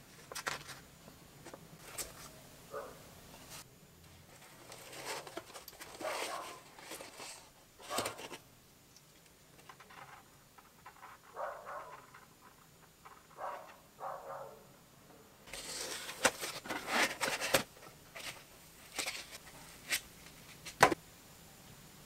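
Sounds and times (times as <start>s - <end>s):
packaging rustling: 4.3s - 8.4s, 15.5s - 21.0s.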